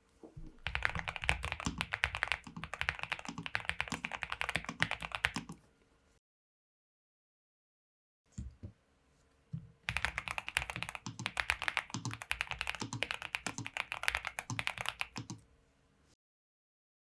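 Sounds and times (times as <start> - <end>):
mechanical keyboard typing: 0.6 - 5.6, 9.9 - 15.4.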